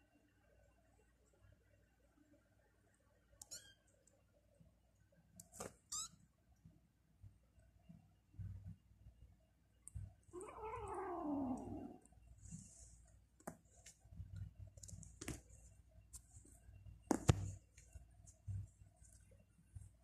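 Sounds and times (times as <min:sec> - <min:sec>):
cat meowing: 0:10.4 - 0:12.0.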